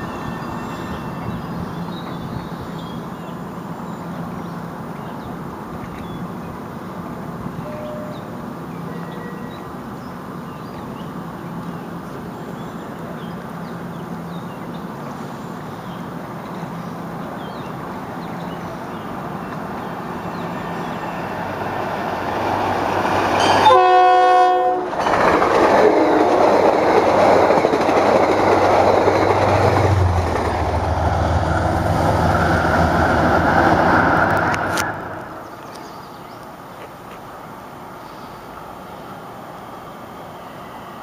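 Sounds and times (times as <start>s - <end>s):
train rumbling past: 0.0s - 41.0s
train horn blast: 23.4s - 25.0s.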